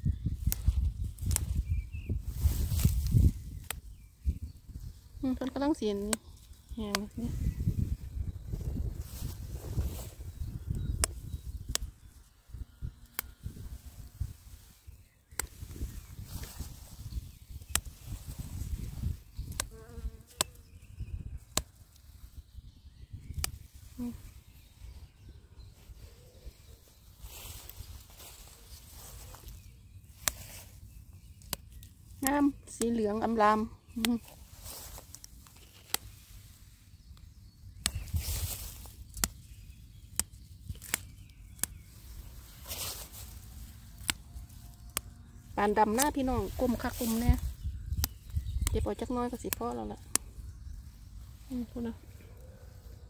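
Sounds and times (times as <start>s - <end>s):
grass rustling: 0.3s - 22.5s, 23.3s - 53.0s
flower stems snapping: 0.4s - 1.8s, 2.4s - 4.0s, 5.4s - 7.3s, 10.6s - 12.0s, 13.0s - 13.4s, 15.3s - 20.8s, 21.4s - 22.2s, 23.3s - 24.1s, 27.5s - 36.4s, 37.1s - 50.9s
sharp clicks: 10.9s - 11.9s, 19.4s - 19.7s, 23.3s - 23.6s, 40.1s - 41.9s, 48.0s - 50.3s
flying insect buzzing: 18.5s - 20.8s.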